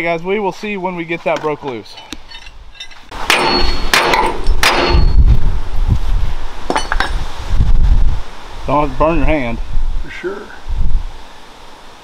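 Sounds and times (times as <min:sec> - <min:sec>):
hammer clanging on steel: 0:01.9 - 0:05.2
wind buffeting microphone: 0:04.4 - 0:11.2.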